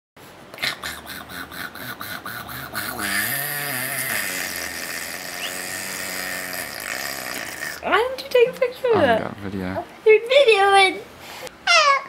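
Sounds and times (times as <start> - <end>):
baby cooing: 0.6 - 7.8
baby vocalizing: 0.6 - 7.9.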